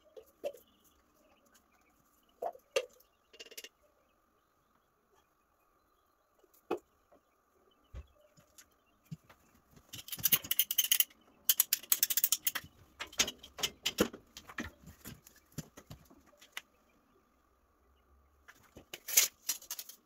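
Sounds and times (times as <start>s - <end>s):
plastic pipe fittings clicking: 9.9s - 14.7s.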